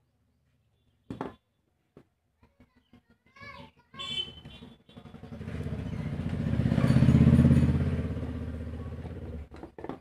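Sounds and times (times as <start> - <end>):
vehicle engine passing by: 5.0 - 9.5.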